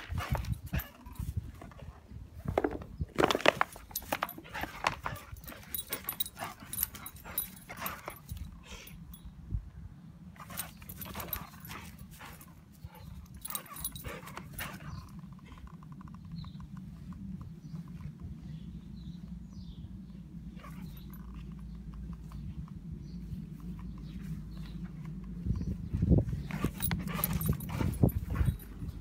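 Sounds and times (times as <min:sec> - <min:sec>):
plastic bottle crackling and crunching: 0:02.6 - 0:03.8.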